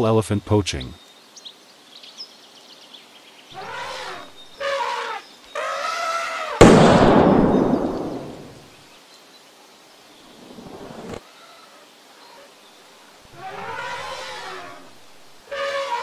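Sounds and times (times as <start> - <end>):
drawn-out pitched calls: 3.5 - 6.7, 13.3 - 16.0
loud bang: 6.6 - 8.6.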